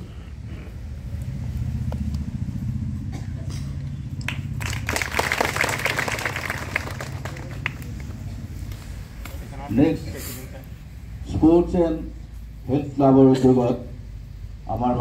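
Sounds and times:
steady low rumble: 0.0s - 15.0s
small crowd applauding: 4.2s - 8.4s.

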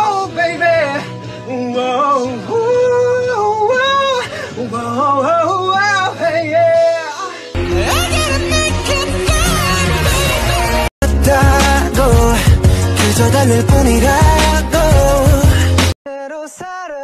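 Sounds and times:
man singing vocal ad-libs: 0.0s - 17.0s
pop music track: 0.0s - 17.0s
low steady backing track: 11.0s - 15.9s.

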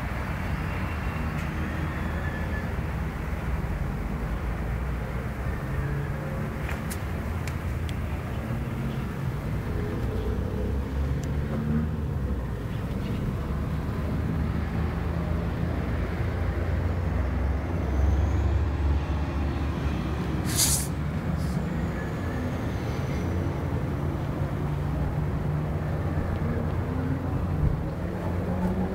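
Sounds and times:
short sharp hiss: 20.4s - 21.0s.

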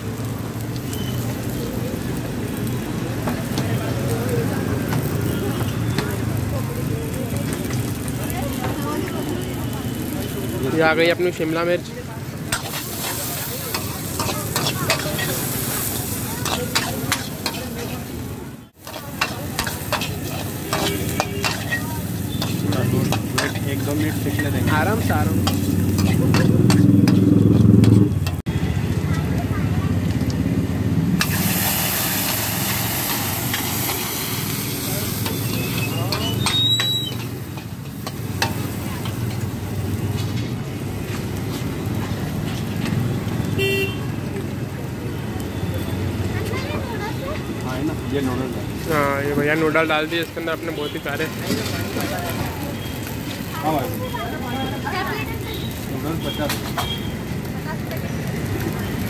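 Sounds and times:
gas burner roaring: 0.0s - 59.0s
vegetables sizzling in a wok: 0.0s - 59.0s
metal ladle scraping a pan: 12.5s - 18.1s, 18.8s - 28.4s
metal spatula clicking on wok: 25.4s - 27.2s.

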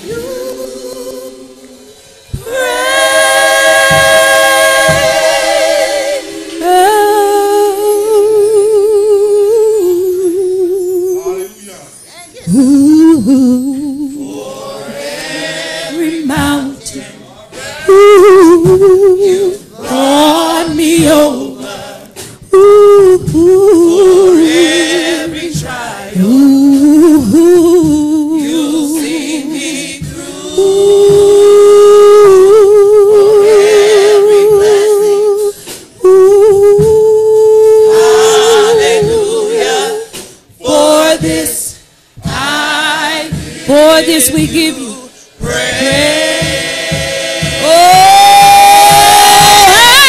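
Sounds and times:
gospel choir singing: 0.0s - 11.6s, 12.5s - 50.0s.

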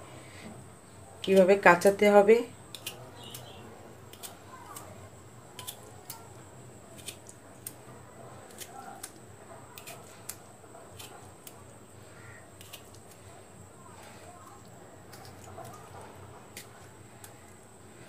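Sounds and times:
fork tines clicking on fruit: 2.7s - 7.8s, 8.4s - 11.7s, 12.5s - 13.2s.

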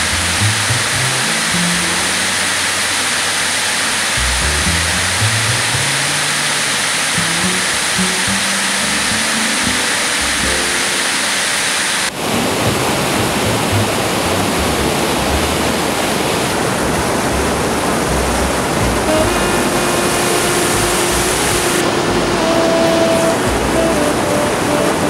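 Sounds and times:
river rapids over rock: 0.0s - 25.0s
rushing white water: 0.0s - 25.0s
soft music with held notes: 7.2s - 11.4s, 18.8s - 25.0s.

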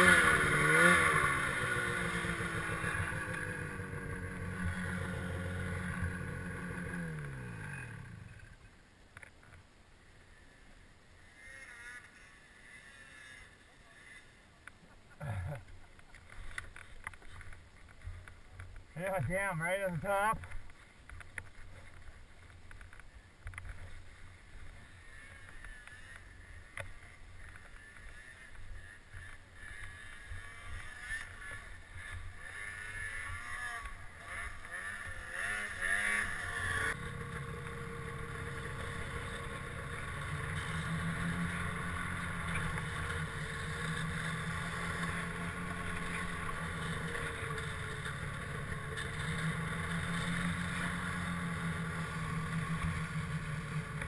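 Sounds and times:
snowmobile engine running: 0.0s - 8.6s, 10.2s - 14.4s, 15.1s - 54.0s
snowmobile engine rumble: 0.0s - 8.8s, 9.4s - 54.0s
snowmobile engine approaching: 0.0s - 54.0s.

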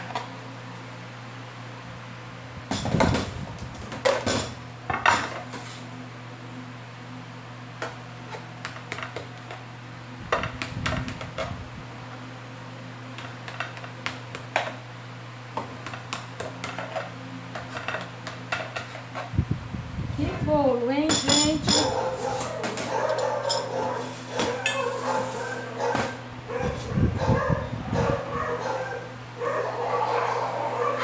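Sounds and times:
metal utensils clattering: 21.1s - 25.5s.

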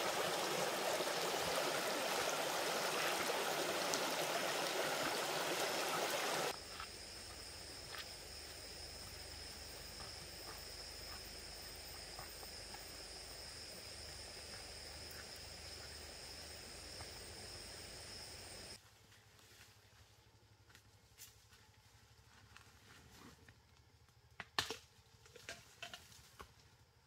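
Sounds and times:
high-pitched insect chorus: 0.0s - 18.8s.

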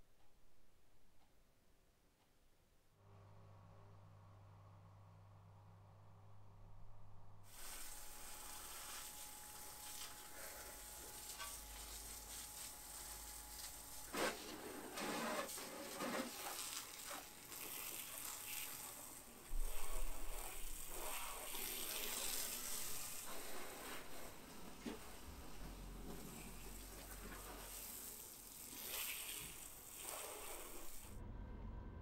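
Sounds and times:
hose nozzle spray hissing: 7.5s - 10.3s, 16.0s - 24.1s, 26.3s - 31.2s
loud low rumble: 31.2s - 32.0s.

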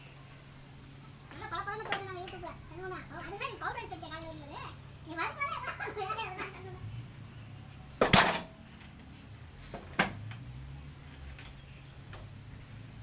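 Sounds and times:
low steady hum: 0.0s - 13.0s
log clanking on steel: 8.0s - 8.6s.

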